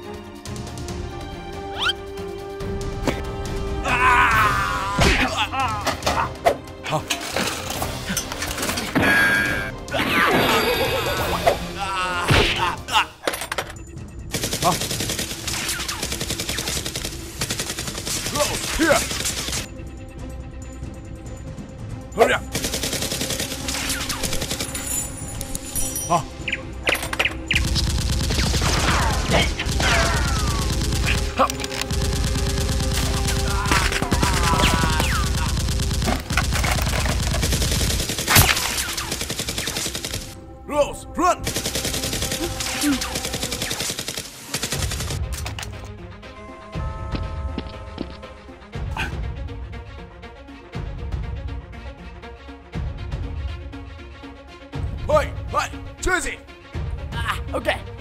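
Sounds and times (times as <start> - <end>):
person shouting: 3.8 - 5.9, 11.7 - 13.2, 29.8 - 30.7, 33.4 - 35.6
rapid automatic gunfire: 14.3 - 19.7, 22.5 - 24.8, 27.5 - 40.4, 41.4 - 45.2.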